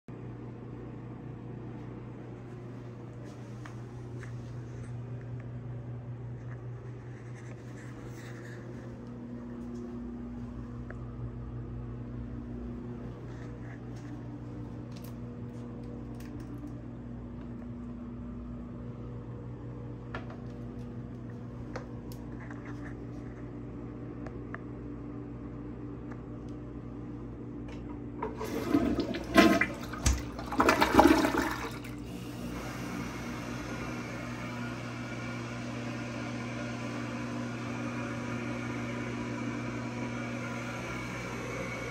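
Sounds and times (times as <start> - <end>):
steady low hum: 0.1 - 41.9
toilet flushing: 28.2 - 41.9
toilet refilling hiss: 28.2 - 41.9.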